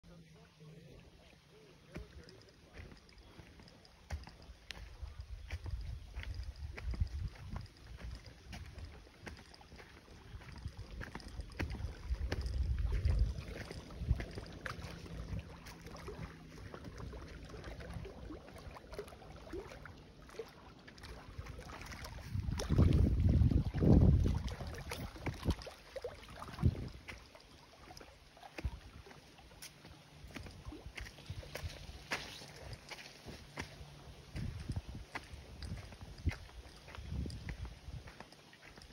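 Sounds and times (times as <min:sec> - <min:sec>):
footsteps on dirt: 0:01.9 - 0:17.1, 0:29.6 - 0:38.9
wind on microphone: 0:04.8 - 0:09.4, 0:10.4 - 0:16.3, 0:22.1 - 0:25.7, 0:26.4 - 0:27.1, 0:33.6 - 0:38.3.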